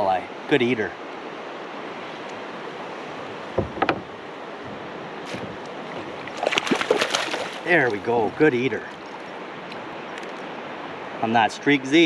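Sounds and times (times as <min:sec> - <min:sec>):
single knock: 0:03.6 - 0:04.1
fish splashing: 0:05.2 - 0:08.0.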